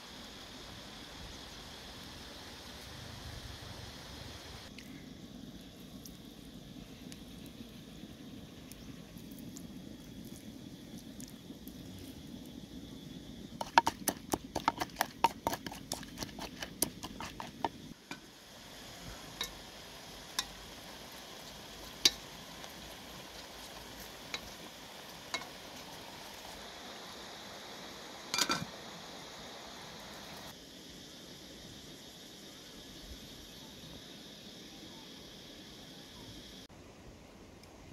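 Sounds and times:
low steady hiss: 0:00.0 - 0:37.9
wooden pestle pounding in mortar: 0:13.6 - 0:17.8
ladle clinking metal pot: 0:28.3 - 0:28.7.

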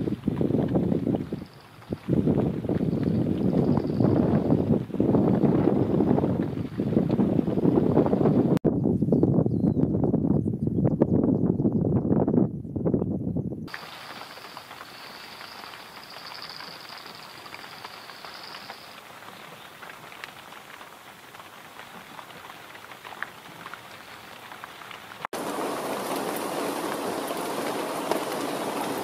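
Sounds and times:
rain falling on grass: 0:00.0 - 0:08.1, 0:13.7 - 0:29.0
heavy rain: 0:13.7 - 0:29.0
raindrop ticks: 0:13.7 - 0:29.0.

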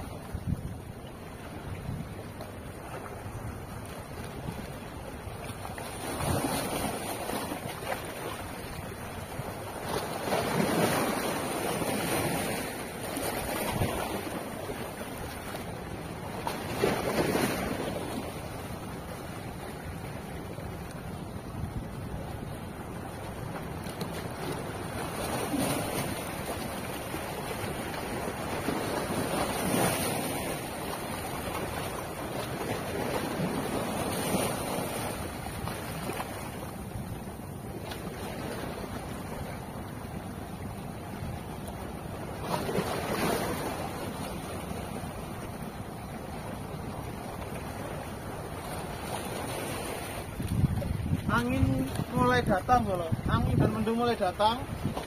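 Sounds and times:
wind buffeting microphone: 0:00.0 - 0:02.4, 0:50.2 - 0:55.0
wind rumbling on microphone: 0:00.0 - 0:55.0
small waves splashing on rock: 0:02.2 - 0:55.0.

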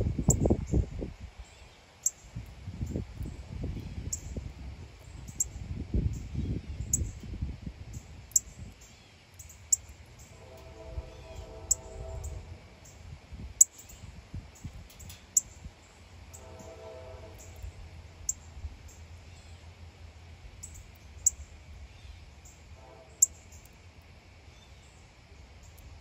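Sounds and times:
low outdoor rumble: 0:00.0 - 0:26.0
birds chipping: 0:07.9 - 0:19.8.

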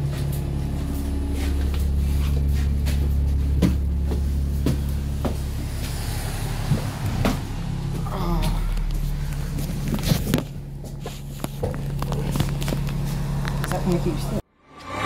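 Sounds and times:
footsteps climbing stairs: 0:00.0 - 0:06.0, 0:06.6 - 0:14.0
bus engine humming: 0:00.0 - 0:15.0.

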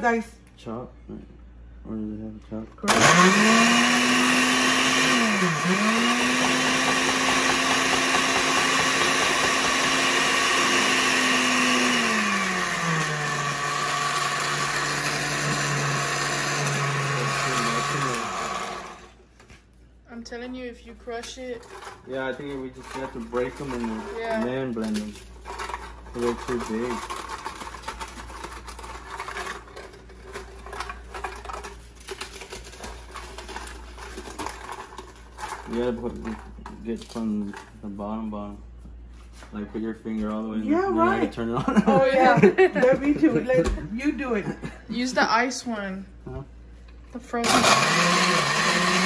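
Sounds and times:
blender motor running: 0:02.8 - 0:19.2, 0:22.8 - 0:24.7, 0:25.5 - 0:31.7, 0:47.3 - 0:49.0.

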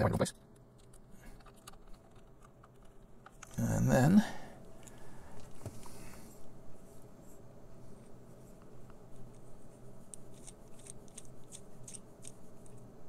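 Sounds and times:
low steady hum: 0:00.0 - 0:13.0
small ticks and clicks: 0:00.3 - 0:03.7, 0:10.1 - 0:12.9.

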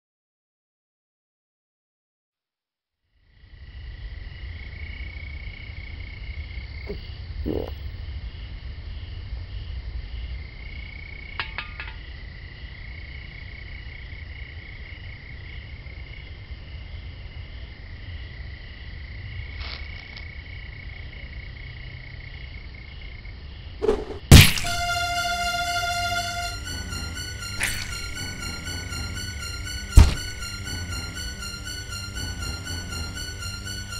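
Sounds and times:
frogs and insects chirping: 0:03.3 - 0:23.8
short thud: 0:23.8 - 0:24.7
blade chopping hit: 0:23.8 - 0:24.9, 0:30.0 - 0:30.3.

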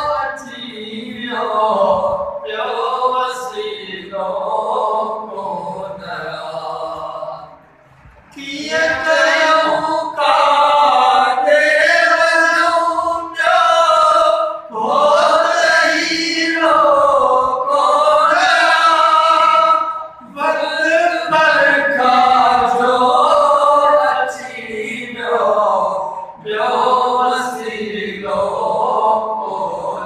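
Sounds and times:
man singing unaccompanied: 0:00.0 - 0:07.6, 0:08.3 - 0:30.0.

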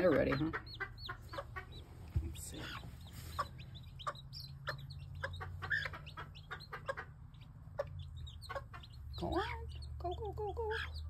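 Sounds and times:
chick peeping: 0:00.0 - 0:11.0
hen clucking: 0:00.0 - 0:11.0.

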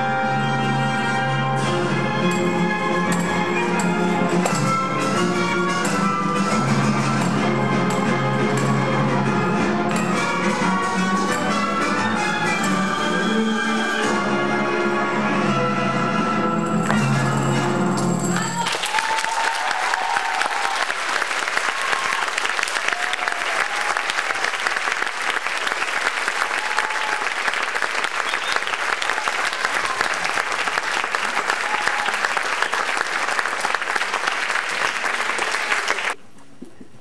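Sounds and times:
audience applauding: 0:18.3 - 0:36.2.

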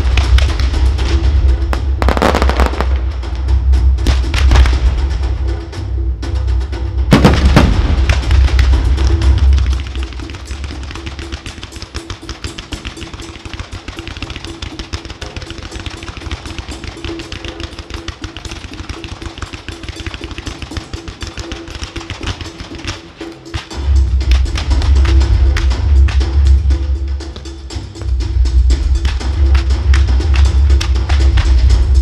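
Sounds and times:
fireworks banging and crackling: 0:00.0 - 0:05.0, 0:07.1 - 0:26.5
music playing: 0:00.0 - 0:32.0.

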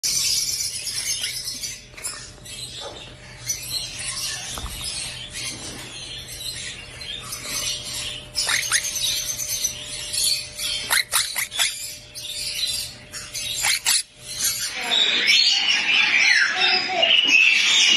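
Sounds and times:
high chirping of cage birds: 0:00.0 - 0:17.9
parrots chattering: 0:00.1 - 0:17.9
parrot squawks: 0:08.4 - 0:09.2, 0:10.6 - 0:11.9, 0:13.4 - 0:17.9.

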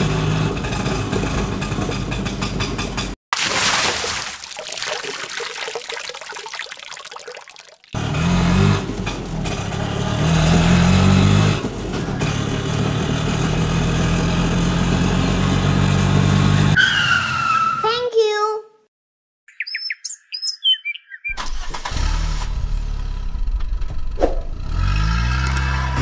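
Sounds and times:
water splashing: 0:03.3 - 0:08.0
water trickling: 0:03.4 - 0:08.0
small engine running: 0:24.5 - 0:26.0.

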